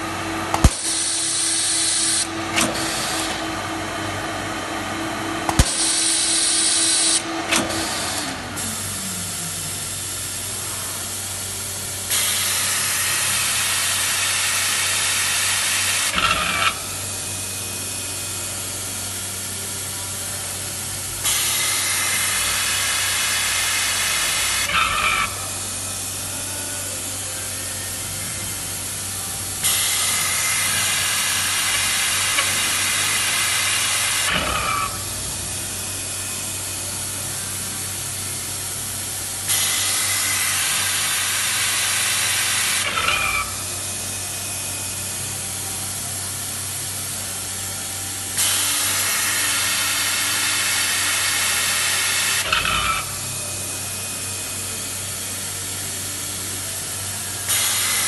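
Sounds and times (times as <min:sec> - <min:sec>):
low machine hum: 0:00.0 - 0:15.4, 0:16.0 - 0:58.0.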